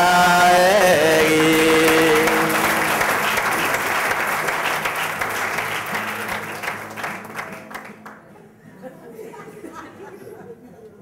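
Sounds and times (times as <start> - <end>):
audience applauding: 0.8 - 8.3.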